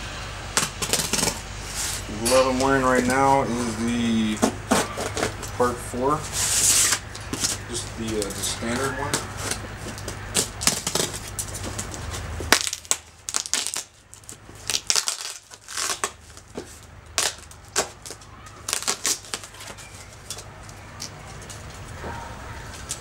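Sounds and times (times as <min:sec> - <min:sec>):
packing tape being slit: 0:00.6 - 0:02.0, 0:06.3 - 0:21.6
cardboard flaps ripping and crinkling: 0:04.7 - 0:20.3.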